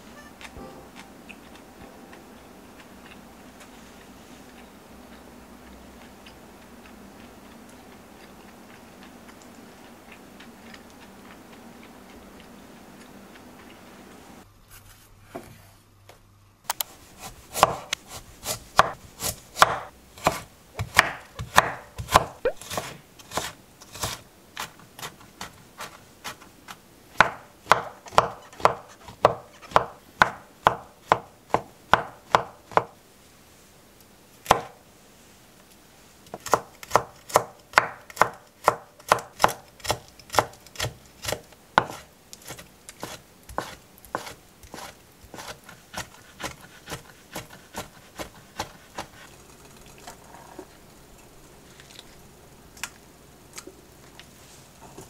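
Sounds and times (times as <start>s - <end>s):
knife chopping on wooden board: 17.2s - 24.2s, 27.2s - 32.9s, 34.5s - 34.8s, 36.3s - 49.2s.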